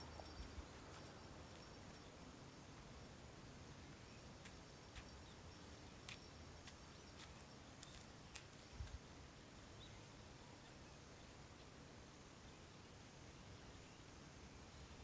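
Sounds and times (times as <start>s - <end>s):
faint light ticks: 4.4s - 5.4s, 6.0s - 9.0s.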